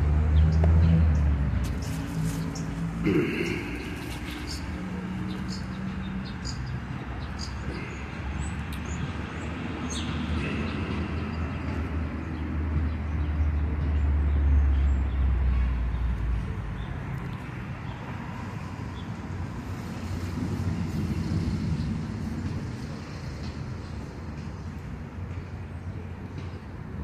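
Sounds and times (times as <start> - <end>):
passing vehicle rumble: 0.0 - 25.8
street background noise: 0.0 - 27.0.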